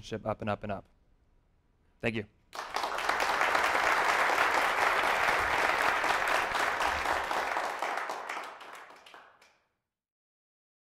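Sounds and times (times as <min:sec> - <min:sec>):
audience applauding: 0:02.6 - 0:09.5.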